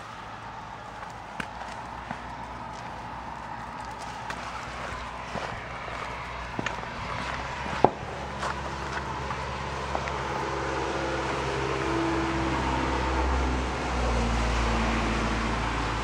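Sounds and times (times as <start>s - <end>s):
puppy paws on gravel: 0.0s - 10.4s.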